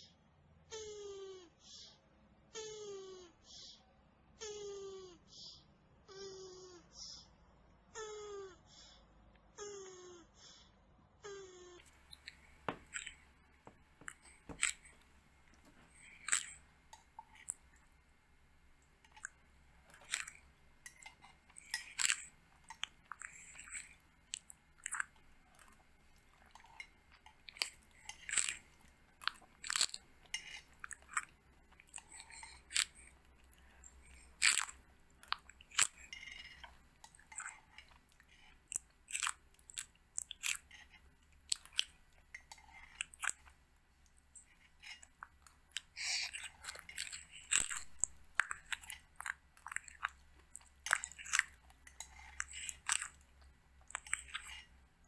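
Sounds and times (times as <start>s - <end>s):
tortoises crunching pellets: 11.8s - 55.0s.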